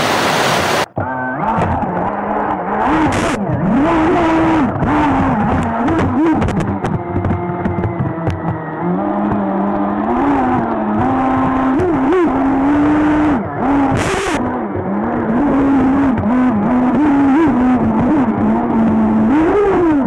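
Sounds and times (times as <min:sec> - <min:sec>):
water rushing and splashing: 0:00.0 - 0:00.9.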